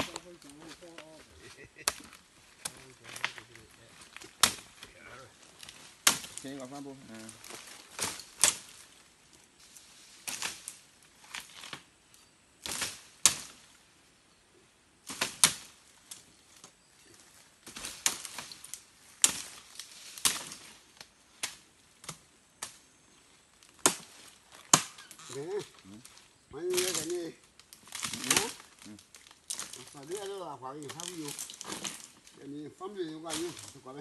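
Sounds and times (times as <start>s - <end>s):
machete chopping brush: 0.0s - 0.9s, 1.8s - 3.5s, 4.1s - 4.9s, 5.7s - 6.7s, 7.4s - 8.8s, 10.1s - 11.9s, 12.6s - 13.7s, 15.0s - 15.8s, 17.6s - 20.8s, 21.4s - 22.8s, 23.7s - 25.1s, 26.7s - 27.2s, 27.8s - 28.8s.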